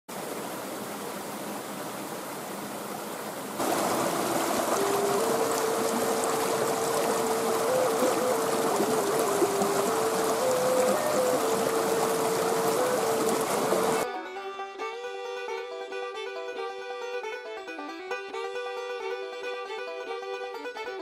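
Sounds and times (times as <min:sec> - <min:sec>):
creek water over rocks: 0:00.1 - 0:14.0
wooden flute melody: 0:03.6 - 0:21.0.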